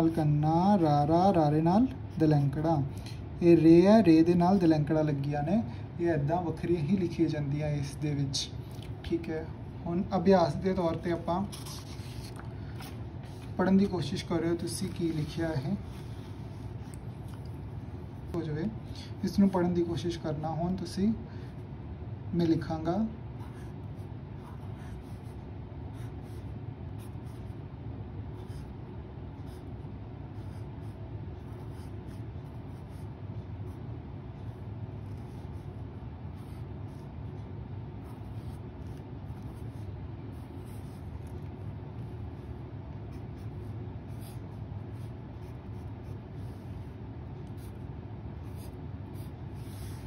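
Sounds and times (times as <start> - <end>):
steady low hum: 0.0 - 50.0
marker scratching on paper: 10.7 - 20.2, 23.3 - 27.6, 28.2 - 50.0.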